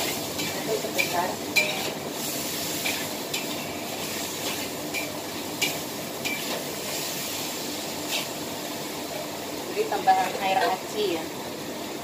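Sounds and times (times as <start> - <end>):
spatula scraping and clinking wok: 0.0 - 7.1
food sizzling: 0.0 - 12.0.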